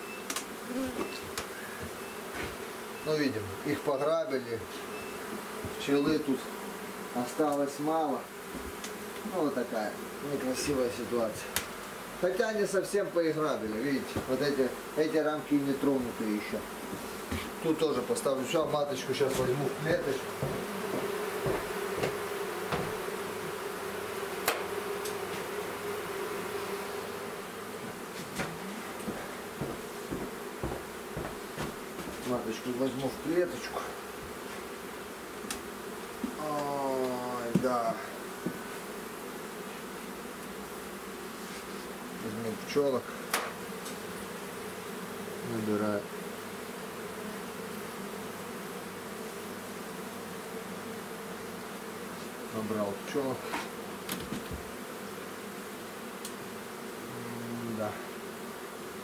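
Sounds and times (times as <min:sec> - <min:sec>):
bees buzzing: 0:00.0 - 0:59.0
sharp knocks: 0:20.3 - 0:23.0, 0:27.8 - 0:32.2.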